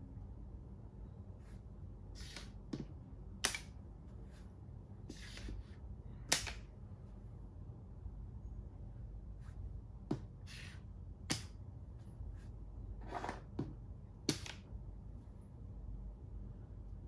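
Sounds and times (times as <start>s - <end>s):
game piece scraping on board: 2.2s - 2.6s, 5.1s - 5.6s, 13.0s - 13.5s.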